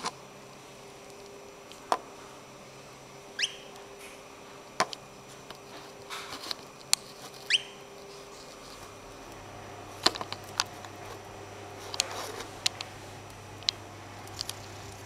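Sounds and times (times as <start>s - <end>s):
bird call notes rising: 3.4s - 3.8s, 7.5s - 7.8s.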